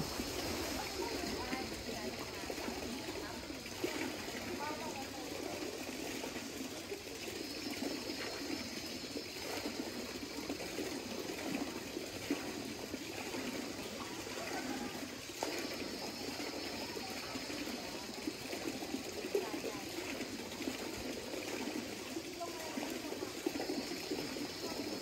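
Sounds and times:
water splashing over cascades: 0:00.0 - 0:07.1.

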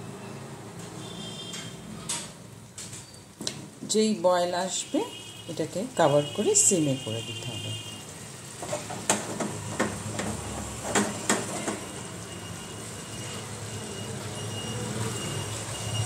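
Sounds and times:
water hissing in a frying pan: 0:03.8 - 0:16.0.

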